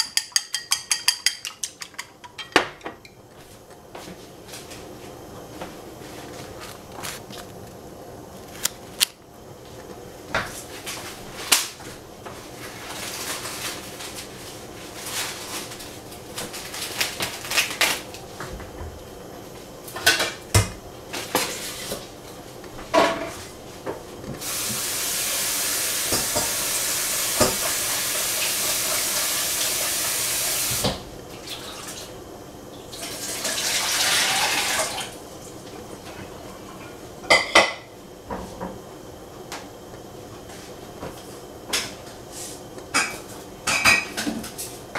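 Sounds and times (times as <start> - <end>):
dishes and utensils clinking: 0.0 - 3.2
water running from tap: 24.4 - 32.1, 32.9 - 35.1.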